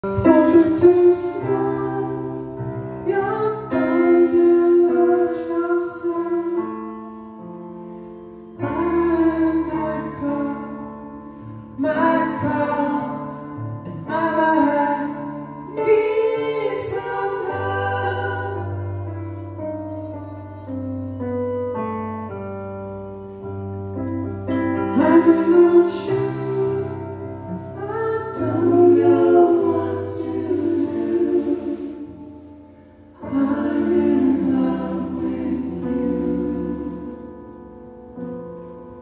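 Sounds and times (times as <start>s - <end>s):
voices singing in harmony: 0.0s - 7.0s, 8.6s - 20.0s, 24.4s - 37.8s
keyboard piano chords: 0.0s - 39.0s.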